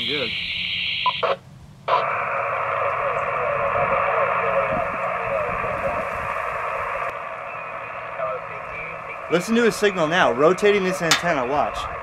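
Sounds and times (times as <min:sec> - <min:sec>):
radio static hiss: 0:00.0 - 0:12.0
faint garbled radio voice: 0:01.2 - 0:12.0.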